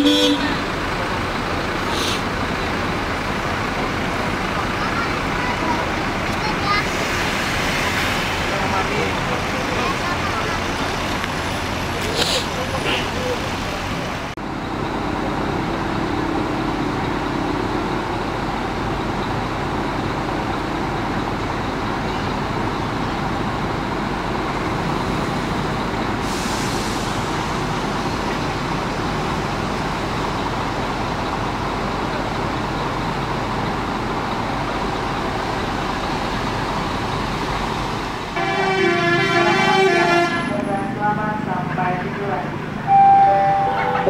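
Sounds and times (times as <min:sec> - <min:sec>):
diesel coach engines rumbling: 0:00.0 - 0:44.0
short air hiss: 0:01.9 - 0:02.2.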